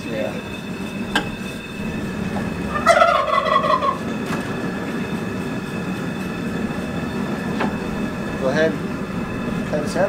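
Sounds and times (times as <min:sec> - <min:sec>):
steady rumbling hiss: 0:00.0 - 0:10.0
turkey gobbling: 0:02.7 - 0:04.1.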